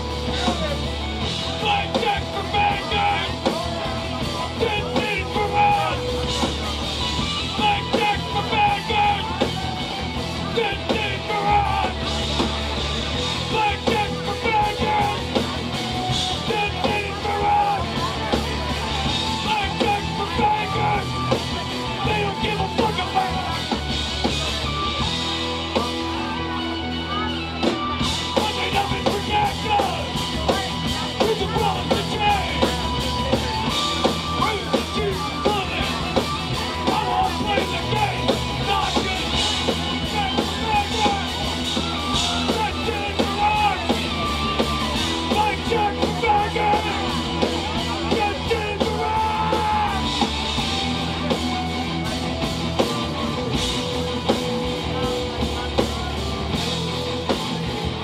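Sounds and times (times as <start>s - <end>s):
bass guitar: 0.0s - 58.0s
drum kit: 0.0s - 58.0s
electric guitar: 0.0s - 58.0s
person singing: 1.5s - 3.7s, 10.4s - 12.1s, 16.2s - 23.6s.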